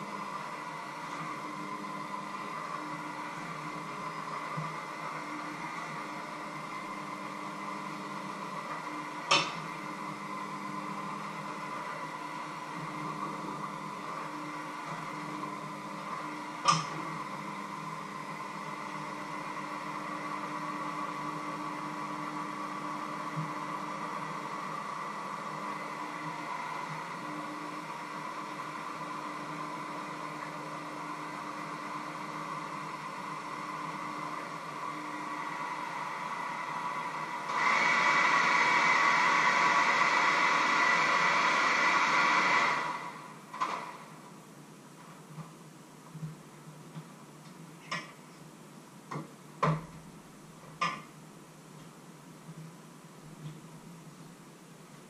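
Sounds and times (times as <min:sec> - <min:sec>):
electric hand mixer whirring: 0:00.0 - 0:43.4.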